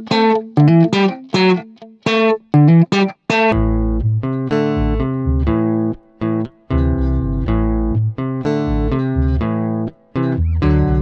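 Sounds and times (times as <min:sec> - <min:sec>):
plucked guitar music: 0:00.0 - 0:11.0
deep bass line: 0:03.6 - 0:06.0, 0:06.7 - 0:09.7, 0:10.4 - 0:11.0.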